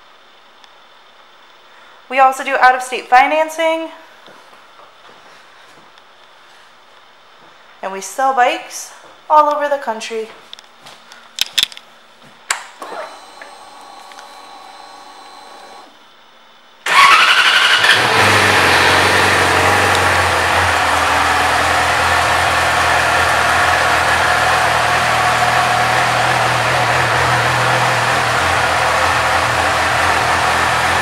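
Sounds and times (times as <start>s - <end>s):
starter motor cranking: 12.8s - 16.0s, 16.9s - 31.0s
motorcycle engine revving and idling: 16.9s - 31.0s.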